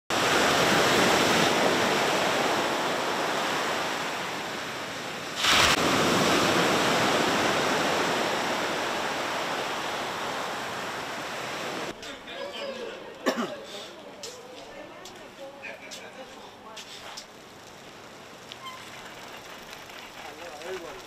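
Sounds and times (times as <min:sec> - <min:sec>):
waves breaking on shore: 0:00.1 - 0:12.0.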